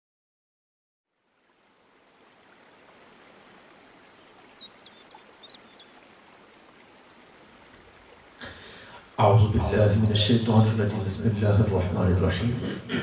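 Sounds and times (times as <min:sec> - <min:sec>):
faint steady hiss: 0:01.1 - 0:13.0.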